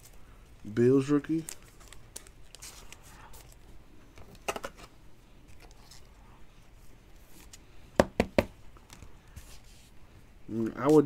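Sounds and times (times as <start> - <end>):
cards rustling: 0.0 - 6.2.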